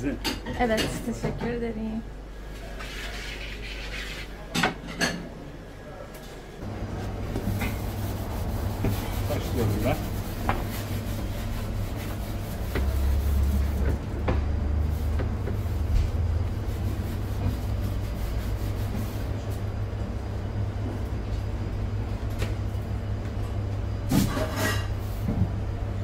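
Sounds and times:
low machine hum: 5.2 - 26.0.

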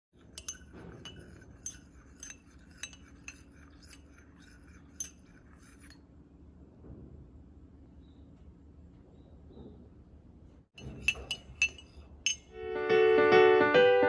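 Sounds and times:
teaspoon clinking in glass mug: 0.2 - 6.0, 10.8 - 12.5.

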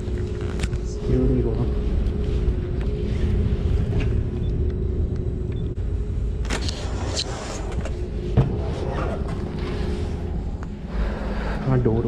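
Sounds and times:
steady low rumble and hum: 0.0 - 12.0.

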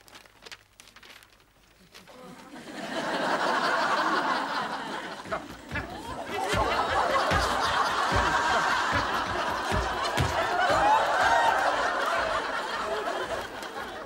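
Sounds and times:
audience laughing: 2.2 - 14.0
heavy thumps through ceiling: 5.2 - 11.5.

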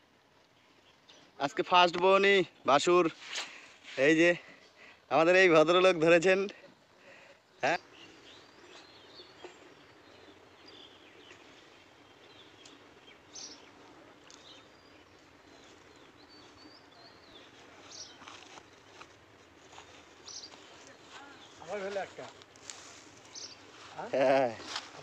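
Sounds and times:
bird chirps: 7.6 - 19.1, 19.8 - 21.8, 23.2 - 23.8.

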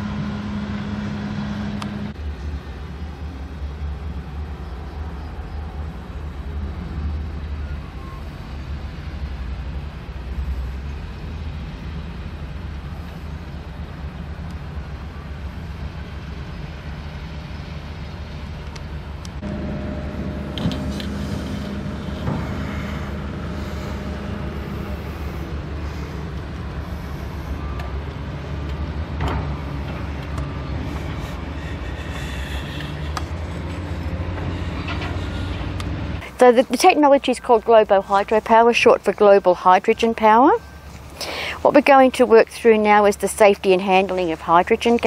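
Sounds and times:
diesel engine humming: 0.0 - 45.0
higher steady hum: 11.8 - 45.0.

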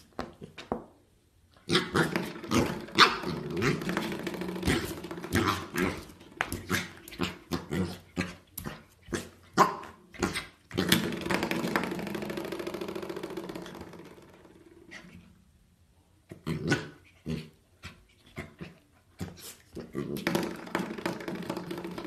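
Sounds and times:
puppy growling and yapping: 1.6 - 11.2, 16.3 - 20.3.

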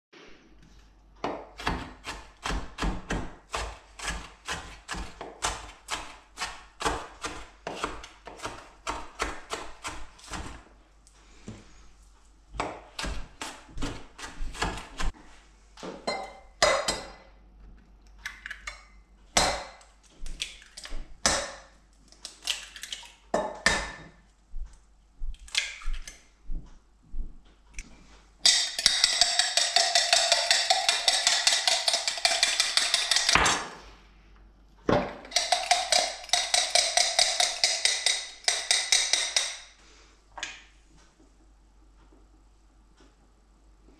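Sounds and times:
knife chopping on wooden board: 1.2 - 10.6, 12.6 - 15.1, 19.4 - 19.8.

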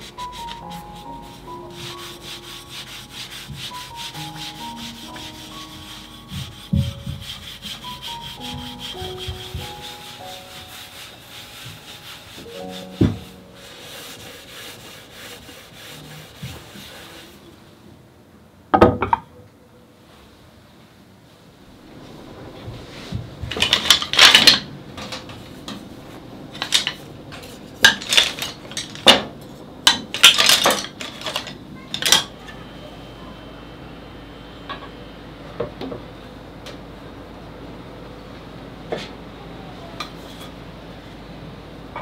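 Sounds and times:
sandpaper rubbing on wood: 0.0 - 17.4.

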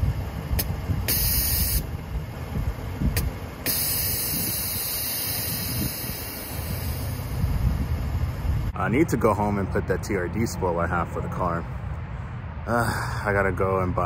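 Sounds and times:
air suspension hissing: 0.5 - 8.7.

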